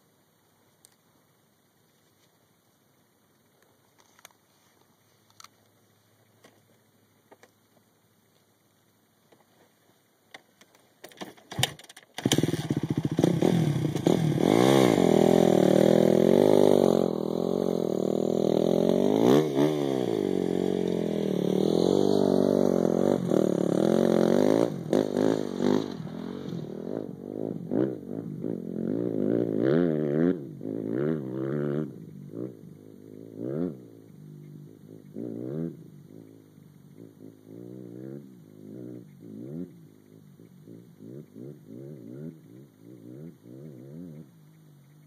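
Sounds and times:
motorcycle engine revving: 11.2s - 45.0s.

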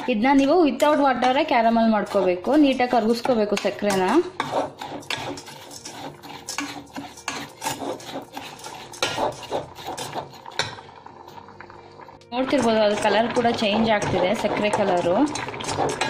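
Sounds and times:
spoon scraping sugar in metal pan: 0.0s - 10.8s, 12.5s - 16.0s
spoon clinking on metal: 0.4s - 9.4s.

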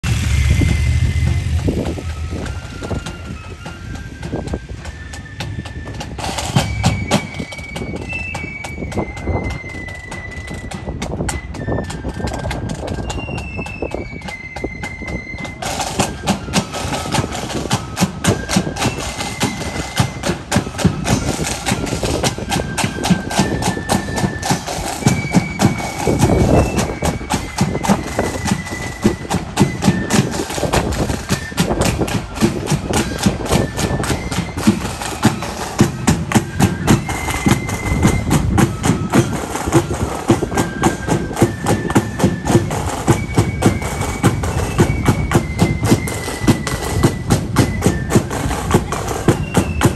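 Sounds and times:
flute melody: 0.0s - 49.9s
marching drum beats: 0.0s - 49.9s.

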